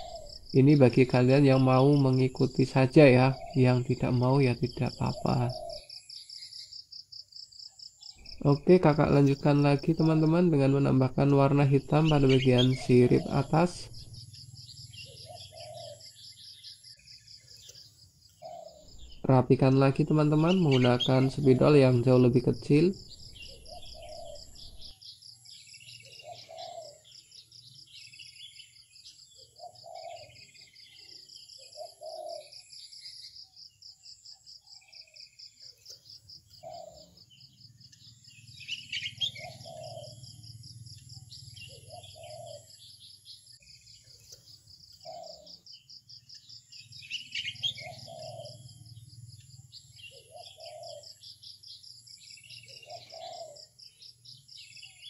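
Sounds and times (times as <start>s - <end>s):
birds chirping: 0.0s - 55.0s.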